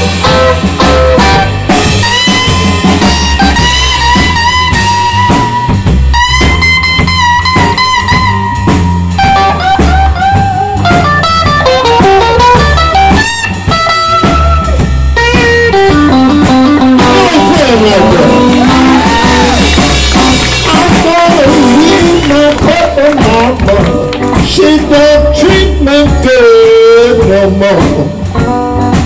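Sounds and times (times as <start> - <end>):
electric guitar solo: 0.0 - 22.6
drum kit: 0.0 - 29.0
electric bass: 0.0 - 29.0.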